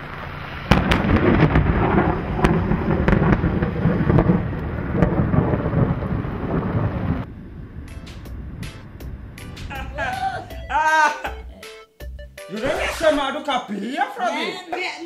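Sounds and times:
thunder rumbling with crackles: 0.0s - 9.9s.

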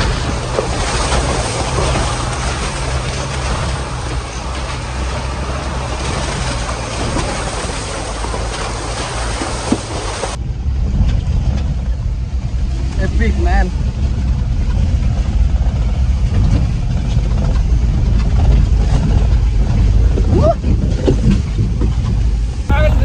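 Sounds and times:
hiss of rain and tyres: 0.0s - 10.4s
low engine drone: 0.0s - 23.0s.

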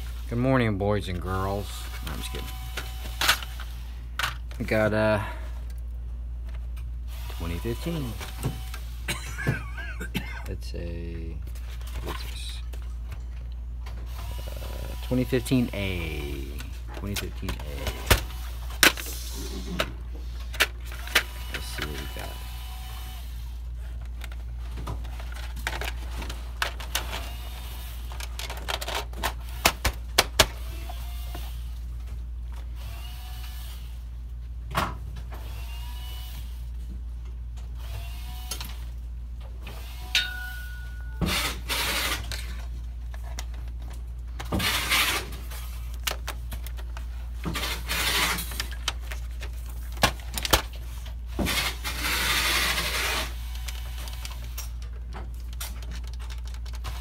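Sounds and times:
steady low hum: 0.0s - 35.7s
plastic parts clicking and knocking: 16.6s - 19.1s, 24.0s - 27.3s, 28.1s - 30.6s, 41.3s - 51.9s, 52.7s - 57.0s.

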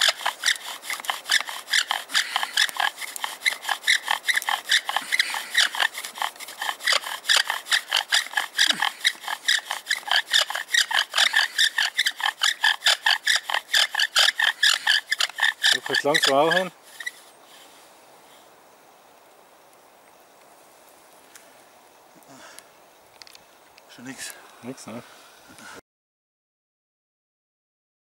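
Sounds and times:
bow drill rasping wood on wood: 0.0s - 17.3s.

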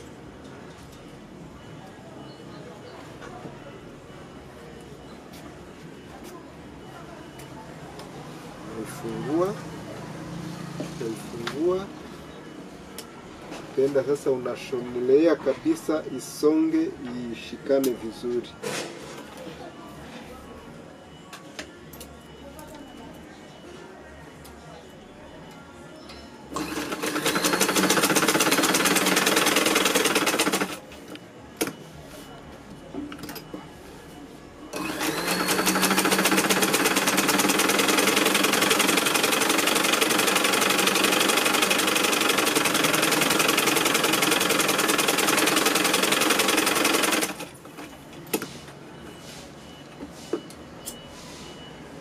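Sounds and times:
sewing machine stitching: 26.5s - 30.8s, 34.8s - 47.6s.

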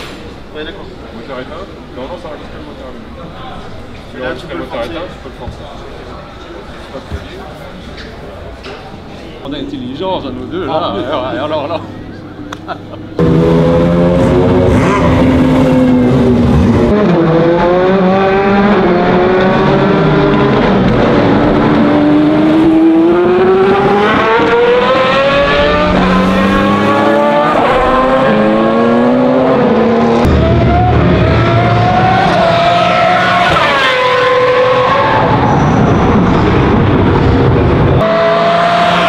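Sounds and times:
race car engine howling: 9.5s - 39.0s.

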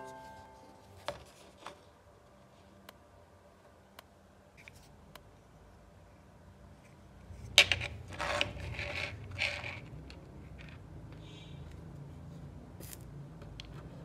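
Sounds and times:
objects rustling and scraping on table: 0.2s - 2.8s, 6.8s - 14.0s.

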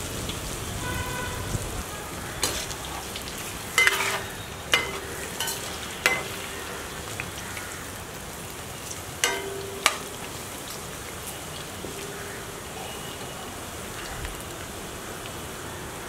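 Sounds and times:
deep-frying sizzle in hot oil: 0.0s - 16.0s
metal skimmer knocking on pan: 3.8s - 6.9s, 9.2s - 10.6s
pan ringing: 3.8s - 7.1s, 9.2s - 10.8s.

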